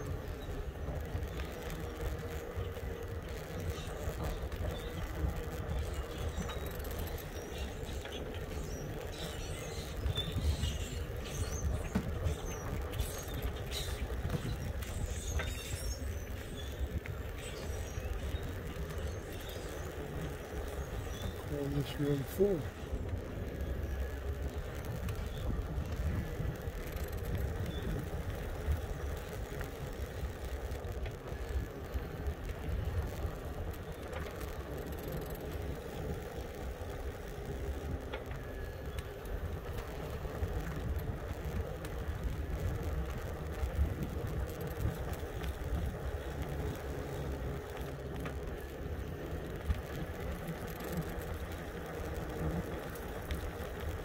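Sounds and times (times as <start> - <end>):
wind rumbling on microphone: 0.0 - 54.0.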